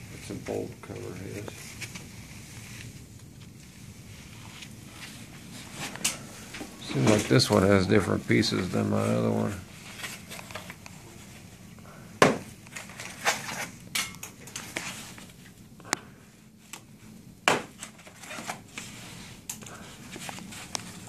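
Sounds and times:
packaging crinkling and rustling: 0:12.4 - 0:15.5, 0:17.6 - 0:21.0.

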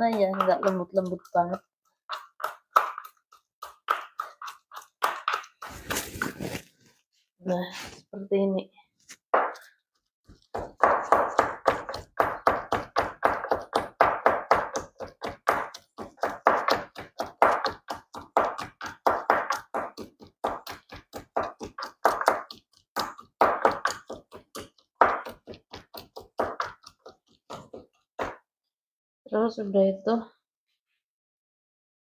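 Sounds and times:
wooden pestle pounding in mortar: 0:00.0 - 0:06.6, 0:09.3 - 0:09.7, 0:10.3 - 0:28.4.

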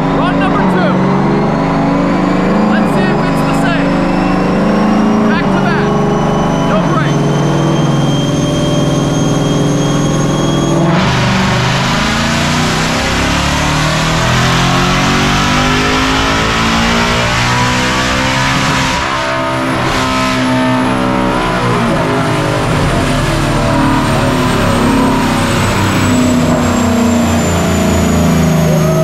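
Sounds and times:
car engine running loud: 0:00.0 - 0:29.0
high-pitched whine: 0:00.0 - 0:29.0.

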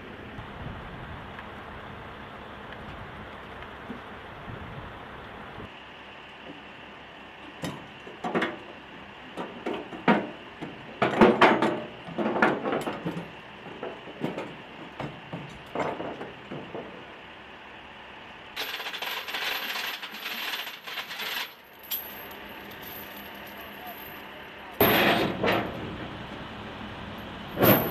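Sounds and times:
metal chain clinking and rattling: 0:18.6 - 0:25.7, 0:27.2 - 0:27.9.

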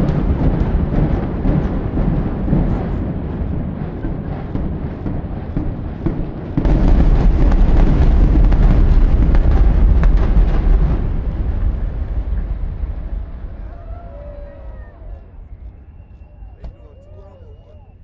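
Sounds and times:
rapid crackling bangs: 0:00.0 - 0:13.7
building collapse rumbling: 0:00.0 - 0:16.6.

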